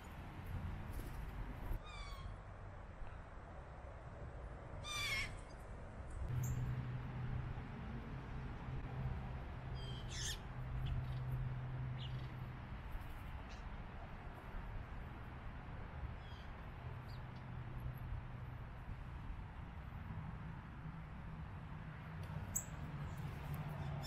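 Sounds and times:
blue jay calls: 1.8 - 2.4, 4.8 - 5.5, 9.8 - 11.2, 16.2 - 16.5.

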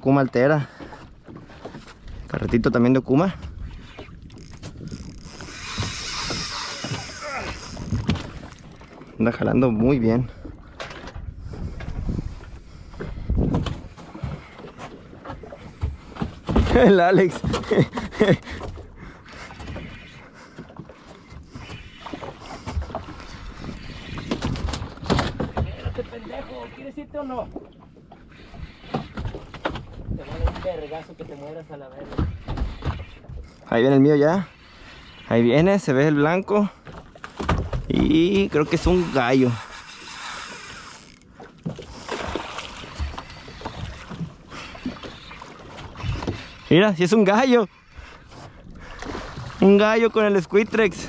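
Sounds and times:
water noise: 0.0 - 51.0
wind: 0.0 - 51.0
fishing reel clicking: 4.4 - 8.9, 38.1 - 41.3.

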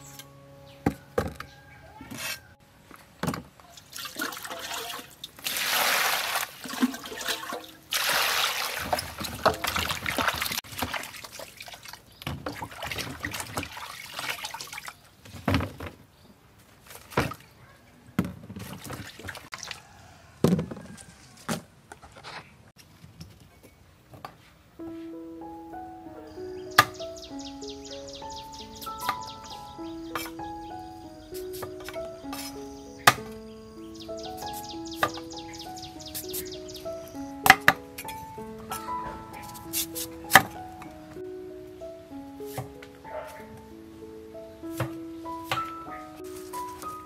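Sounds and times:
water splashing and sloshing: 2.9 - 17.6, 18.2 - 19.9
wet pieces knocking into colander: 6.6 - 11.0.

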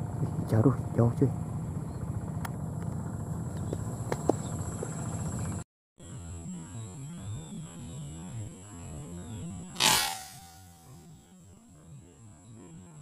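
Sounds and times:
steady low hum: 0.0 - 13.0
low wavering drone: 5.0 - 13.0.

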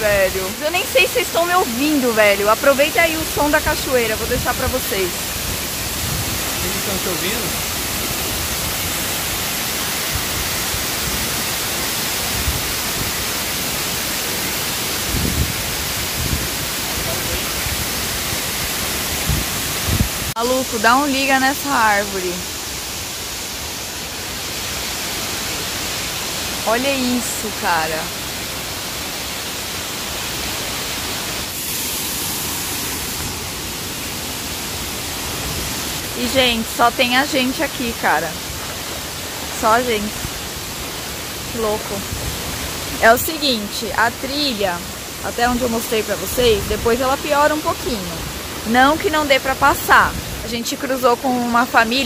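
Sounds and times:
waterfall rushing: 0.0 - 52.0.

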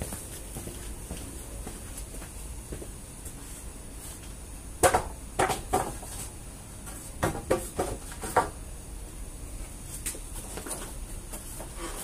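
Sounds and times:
wooden planks knocking: 4.8 - 6.2, 7.2 - 8.6.

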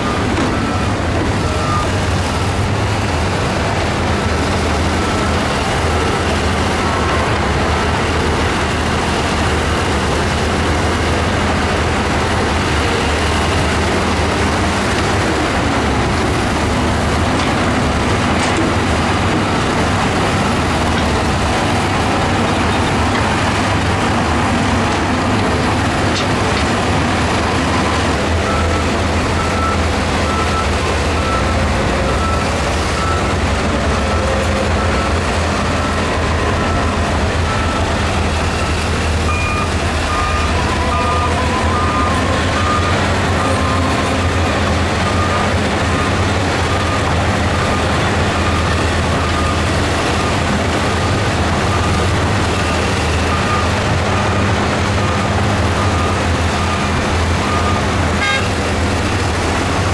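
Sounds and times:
reversing alarm beeps: 0.0 - 2.5, 27.4 - 58.5
diesel engines running: 0.0 - 59.9.

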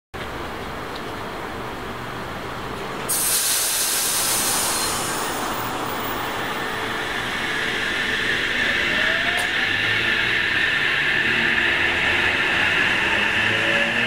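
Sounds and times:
train rumble: 0.2 - 14.0
loud hiss: 3.1 - 8.6
train motor whine rising: 3.1 - 14.0.

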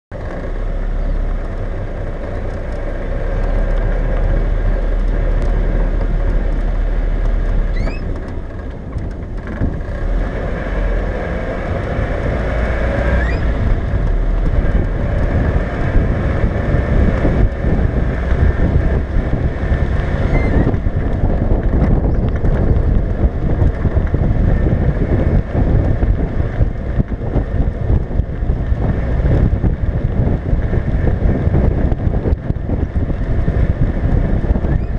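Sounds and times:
car engine running: 0.1 - 34.9
road noise: 0.1 - 34.9
wind buffeting microphone: 0.4 - 34.9.

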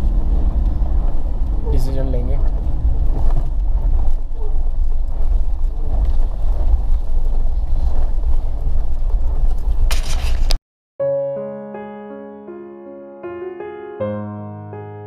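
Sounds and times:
car engine and tyre rumble: 0.0 - 10.6.

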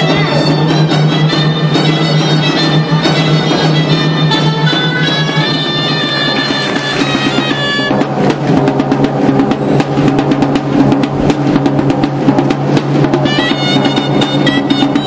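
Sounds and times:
bagpipe drone: 0.0 - 8.0, 13.2 - 15.0
bagpipe melody: 0.0 - 8.0, 13.2 - 15.0
quick drumming: 0.0 - 15.0.

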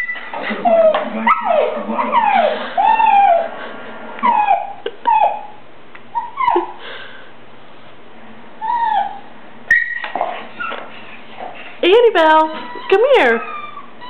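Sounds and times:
dog whining and yelping: 0.0 - 6.8, 8.6 - 10.9, 12.4 - 14.0.

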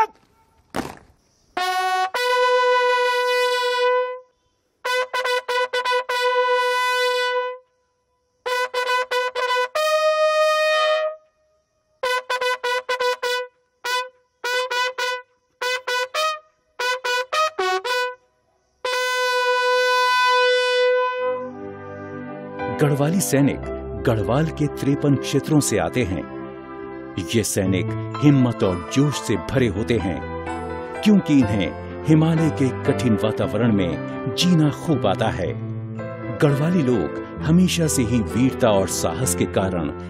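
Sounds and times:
bugle call: 0.0 - 0.6, 1.6 - 4.2, 4.8 - 7.6, 8.5 - 11.2, 12.0 - 18.2, 18.8 - 21.4.

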